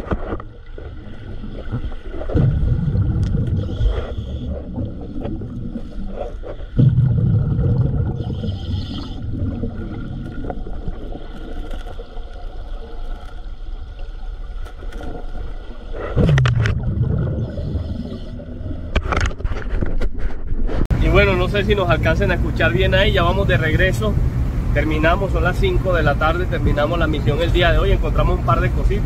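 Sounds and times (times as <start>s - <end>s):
underwater exhaled air bubbling: 0.6s - 13.2s, 15.1s - 19.0s.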